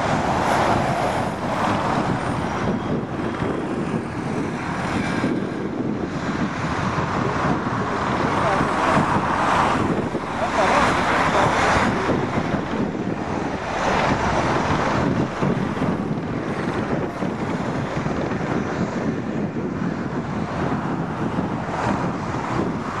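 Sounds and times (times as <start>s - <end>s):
jet engines rumbling: 0.0s - 23.0s
wind buffeting microphone: 0.0s - 23.0s.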